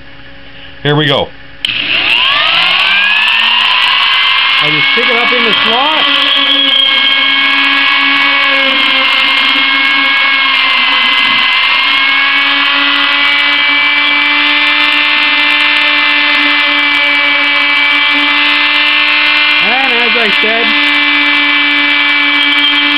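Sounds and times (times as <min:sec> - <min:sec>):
rotary tool high whine: 0:01.6 - 0:22.9.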